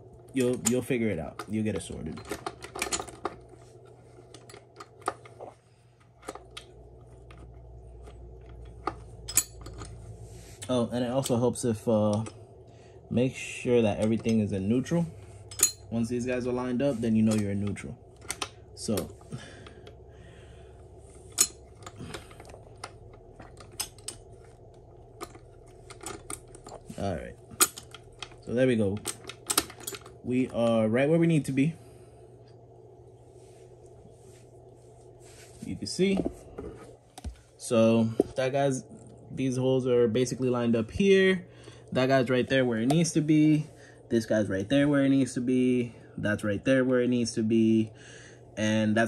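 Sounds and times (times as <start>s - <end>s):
low steady hum: 0.0s - 49.0s
metal parts clicking and tapping: 0.4s - 3.5s, 6.2s - 10.0s, 15.5s - 16.1s, 17.2s - 19.1s, 21.3s - 30.2s
light metallic clicks and clinks: 9.2s - 10.0s, 15.5s - 16.0s.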